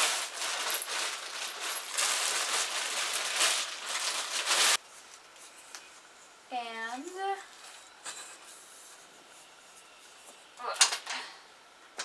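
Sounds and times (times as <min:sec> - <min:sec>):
plastic wrap crinkling: 0:00.0 - 0:05.2.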